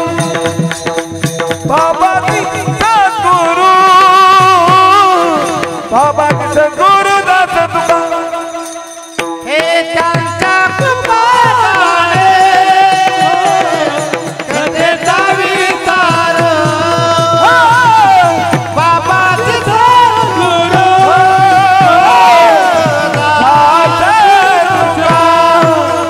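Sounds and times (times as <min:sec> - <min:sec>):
drum beat: 0:00.0 - 0:26.0
men singing devotional chant: 0:00.0 - 0:26.0.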